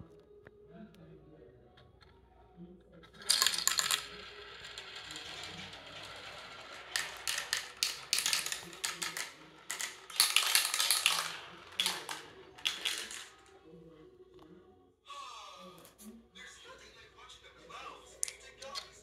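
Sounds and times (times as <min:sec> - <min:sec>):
balls clattering: 0:03.0 - 0:13.9, 0:18.0 - 0:19.0
balls rolling on plastic tracks: 0:03.0 - 0:14.0, 0:17.6 - 0:19.0.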